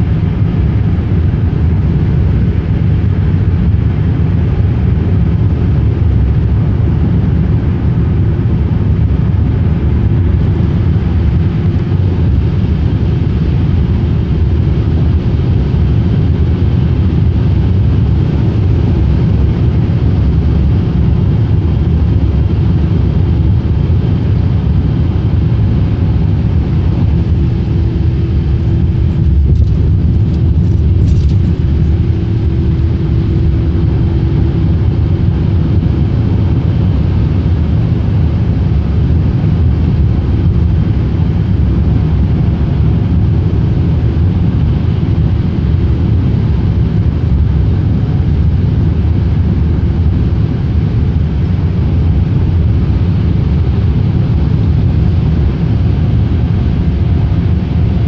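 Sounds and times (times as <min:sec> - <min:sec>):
steady hum: 0:00.0 - 0:58.0
car cabin road rumble: 0:20.2 - 0:38.3.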